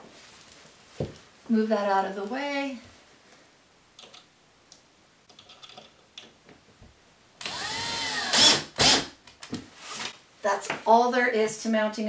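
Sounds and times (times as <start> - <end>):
cordless drill driving screw: 7.4 - 9.1.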